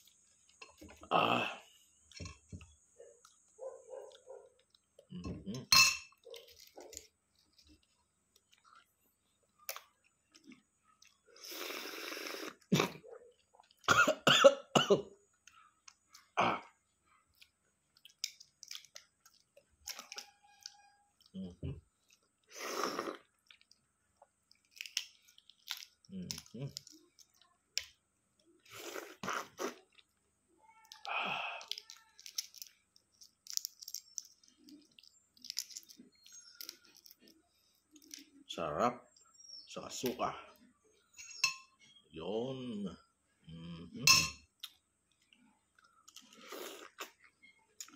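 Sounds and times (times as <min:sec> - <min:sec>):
chewing: 0:02.6 - 0:13.9, 0:17.1 - 0:30.2, 0:30.8 - 0:38.4, 0:44.6 - 0:47.9
person slurping: 0:11.3 - 0:13.0, 0:22.4 - 0:23.4, 0:28.6 - 0:30.0, 0:46.2 - 0:47.2
cough-like burst: 0:12.7 - 0:13.0
eggshell crackling as peeled: 0:17.4 - 0:20.9, 0:24.4 - 0:28.0, 0:30.8 - 0:38.3
breathy noise: 0:31.0 - 0:32.2.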